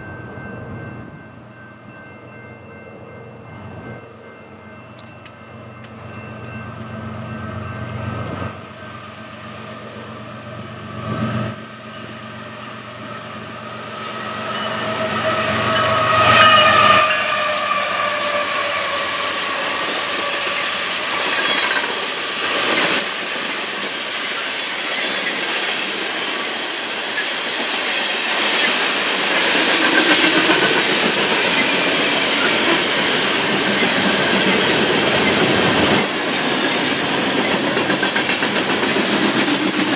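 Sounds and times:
train rumble: 0.0 - 39.9
locomotive horn: 14.6 - 21.0.

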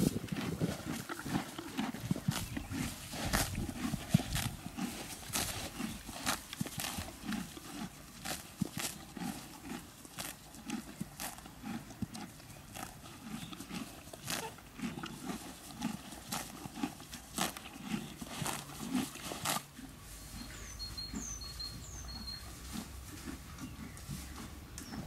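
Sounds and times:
horse tearing grass: 0.0 - 25.0
muffled chewing: 0.0 - 25.0
bird chirping: 20.2 - 22.7, 23.5 - 25.0.

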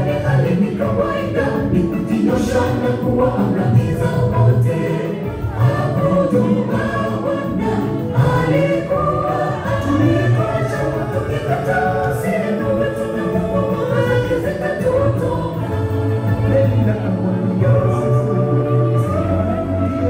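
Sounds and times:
gospel group singing: 0.0 - 20.0.

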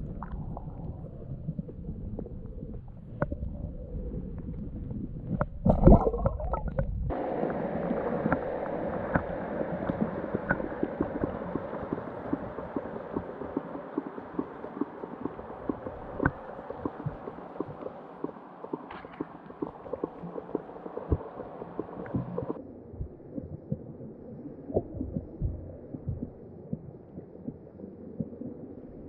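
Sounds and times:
muffled underwater rumble and thumps: 0.0 - 29.0
steady underwater hiss: 6.4 - 22.6
small clicks and ticks: 8.3 - 22.6.

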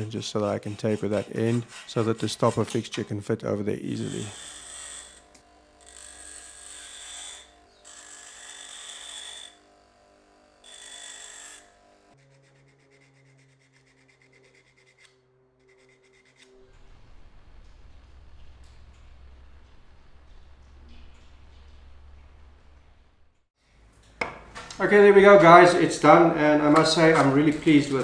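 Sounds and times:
sandpaper rubbing on wood: 0.0 - 3.1, 3.8 - 5.2, 12.2 - 16.5
metal grinding on wheel: 0.0 - 9.7
bench grinder humming: 0.0 - 16.8.

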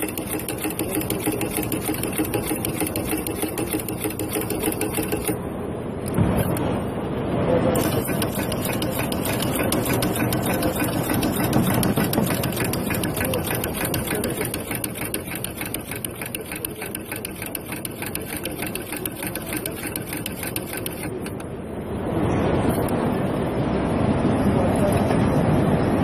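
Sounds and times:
machine clicking rapidly: 0.0 - 5.4, 7.8 - 21.5.

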